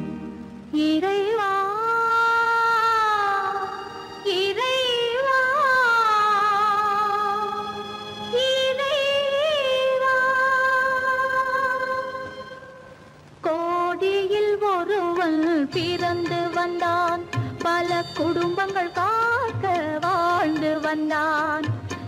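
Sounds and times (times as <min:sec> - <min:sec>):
woman singing with vibrato: 0:00.0 - 0:22.0.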